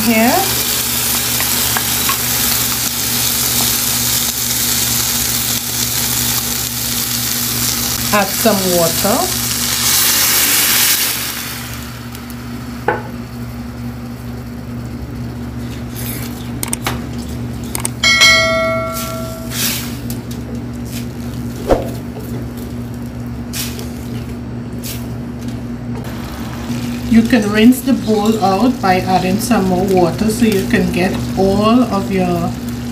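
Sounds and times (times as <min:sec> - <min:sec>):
water sizzling in hot pan: 0:00.0 - 0:12.9, 0:26.0 - 0:32.9
low hum: 0:17.9 - 0:19.6
notification ding: 0:18.0 - 0:19.6.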